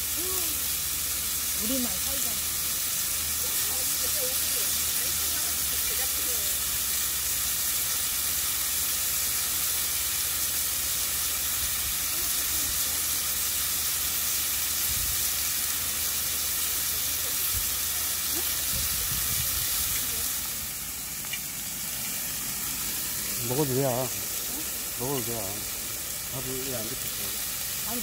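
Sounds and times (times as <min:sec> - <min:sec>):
meat sizzling in a pan: 0:00.0 - 0:28.0.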